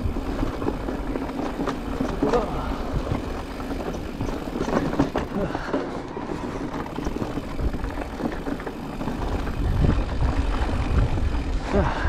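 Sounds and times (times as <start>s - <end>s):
bike rattling: 0.0s - 12.0s
tyres crunching over gravel: 0.0s - 12.0s
wind on microphone: 6.7s - 12.0s.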